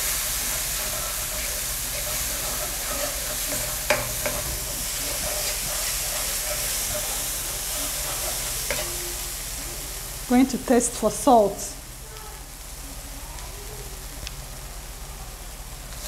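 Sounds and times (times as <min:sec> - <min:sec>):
wooden spatula scraping pan: 0:00.0 - 0:09.2
paste frying in oil: 0:00.0 - 0:16.0.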